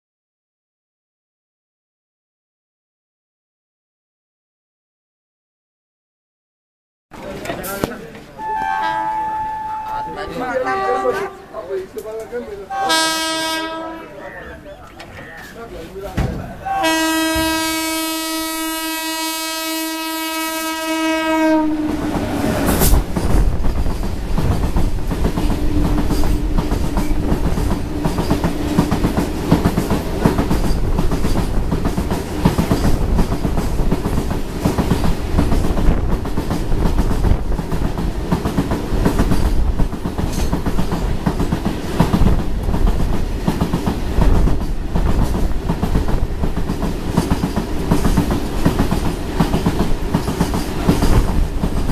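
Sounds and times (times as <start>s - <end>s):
electric locomotive passing: 7.2s - 16.0s, 16.6s - 51.9s
train horn blast: 8.4s - 11.6s, 12.7s - 14.2s, 16.7s - 22.8s, 25.4s - 29.6s.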